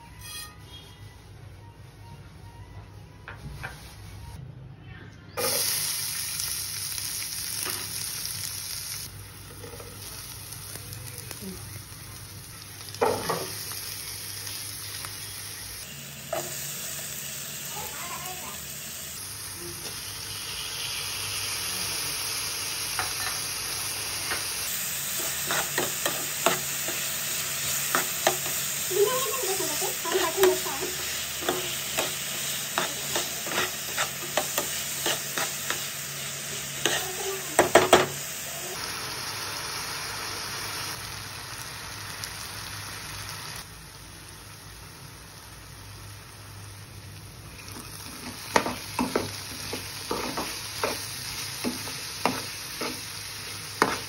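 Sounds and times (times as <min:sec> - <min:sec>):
vegetables sizzling in oil: 0:05.4 - 0:54.0
spoon scraping a pan: 0:25.0 - 0:36.1, 0:36.7 - 0:38.0, 0:48.0 - 0:53.1, 0:53.8 - 0:54.0.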